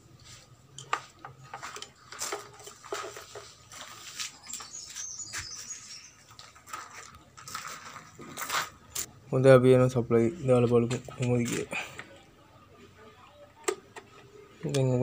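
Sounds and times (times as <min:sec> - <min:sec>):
hands rustling wiring: 0:00.2 - 0:09.1.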